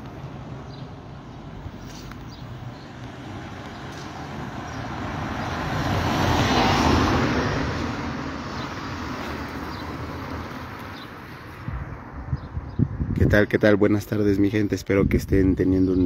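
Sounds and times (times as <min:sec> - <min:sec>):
vehicle passing by: 0:00.2 - 0:12.5.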